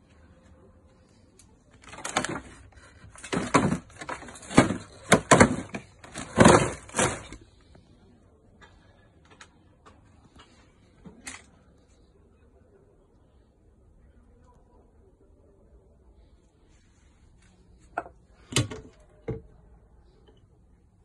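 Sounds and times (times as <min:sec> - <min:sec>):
plastic crates scraping and knocking: 0:01.8 - 0:07.5.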